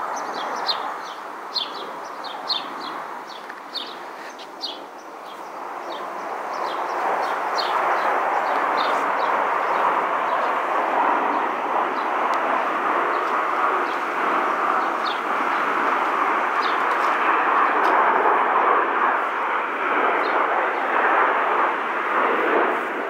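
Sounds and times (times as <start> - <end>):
distant jet aircraft roar: 0.0 - 23.0
bird chirps: 0.1 - 9.0.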